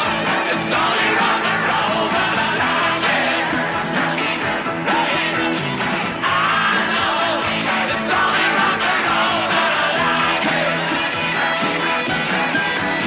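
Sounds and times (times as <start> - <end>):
rock song with singer and band: 0.0 - 13.0.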